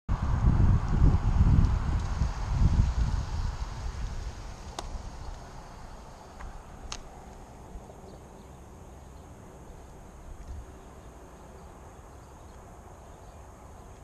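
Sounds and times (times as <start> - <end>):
tyres hissing on wet road: 0.1 - 8.0
wind rumbling on microphone: 0.1 - 14.0.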